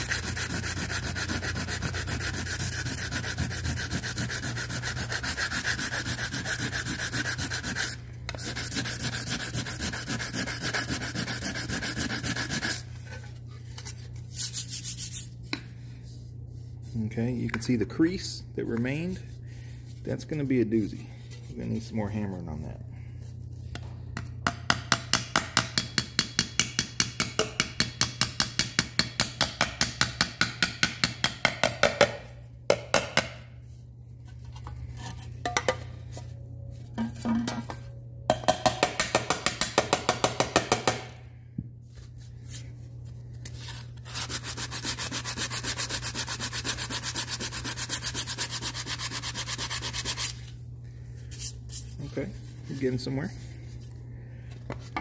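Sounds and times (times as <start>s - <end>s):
hand sanding on metal: 0.0s - 12.9s, 14.3s - 15.4s, 43.6s - 50.4s
small hammer tapping on metal: 24.4s - 32.1s.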